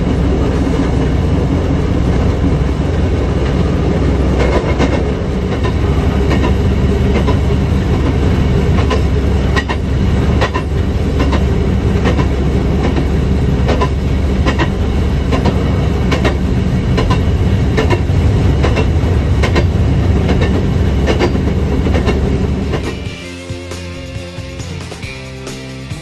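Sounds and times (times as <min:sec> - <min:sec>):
wheels clicking over rail joints: 0:00.0 - 0:23.2
engine rumble: 0:00.0 - 0:26.0
background music: 0:17.0 - 0:26.0.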